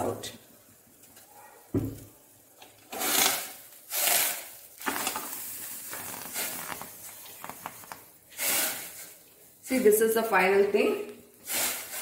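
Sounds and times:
steamer hissing puffs: 8.3 - 9.2, 11.4 - 12.0.

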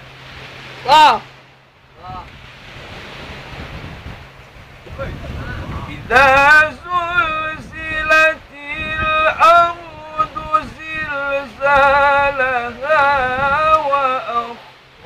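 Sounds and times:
man chanting recitation: 5.4 - 14.6.

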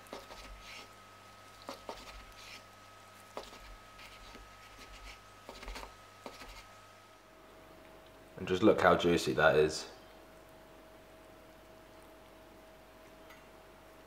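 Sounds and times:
knife slicing chicken: 1.6 - 2.6.

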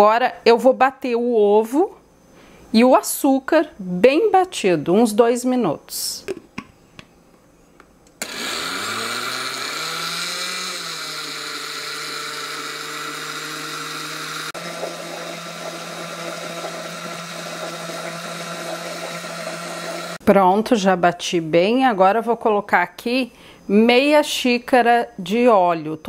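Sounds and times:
blender motor whining: 8.2 - 20.2.

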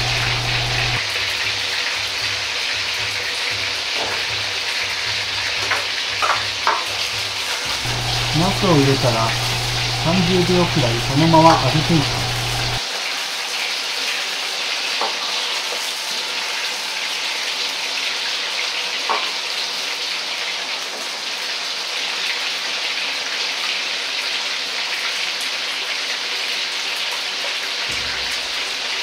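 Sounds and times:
food deep-frying in hot oil: 0.0 - 29.0.

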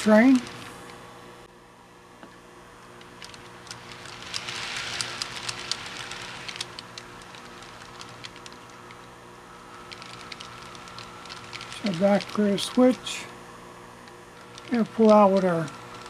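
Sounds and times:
faint motor hum: 0.0 - 16.0
model train wheels clicking: 3.0 - 9.0, 9.8 - 13.3, 14.4 - 16.0.

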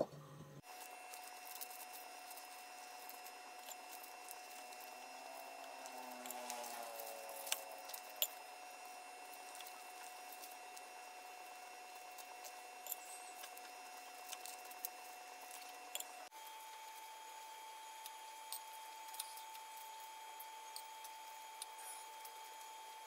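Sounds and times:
papery skins crackling while peeled: 0.6 - 8.3.

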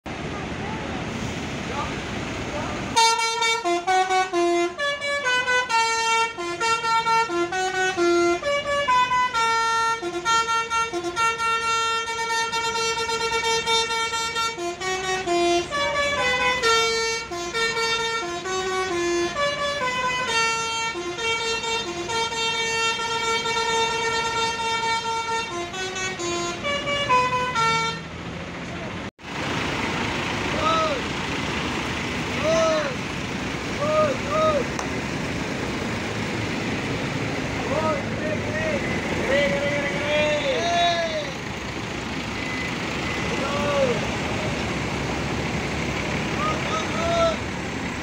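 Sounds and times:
bus musical horn melody: 2.9 - 28.6, 37.8 - 44.0.

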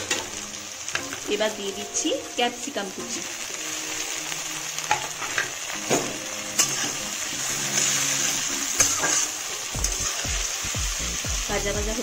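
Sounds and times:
vegetables sizzling in oil: 0.0 - 12.0
metal spatula scraping a wok: 4.9 - 10.3.

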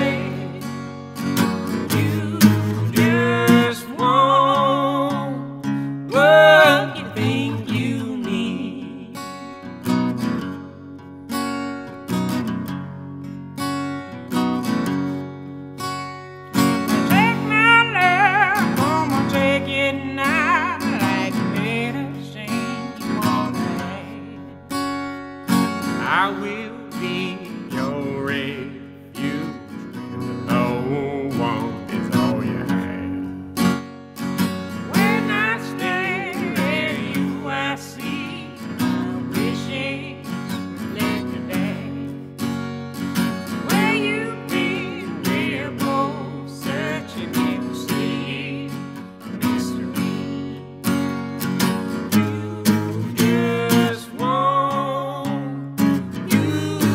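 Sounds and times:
woman and man singing duet: 0.0 - 0.8, 1.7 - 9.4, 17.0 - 24.5, 26.0 - 29.7, 30.4 - 33.1, 34.8 - 42.2, 43.6 - 50.5, 52.1 - 56.9
acoustic guitar strumming: 0.0 - 56.9.

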